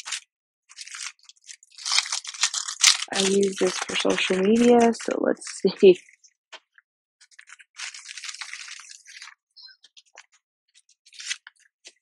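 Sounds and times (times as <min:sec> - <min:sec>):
paper sticker sheets rustling: 0:00.0 - 0:06.3, 0:07.2 - 0:12.0
plastic sleeve crinkling: 0:00.0 - 0:06.3, 0:07.2 - 0:12.0.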